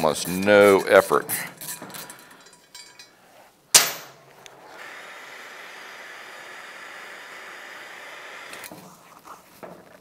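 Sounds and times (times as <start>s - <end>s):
gas torch flame hissing: 4.4s - 8.9s.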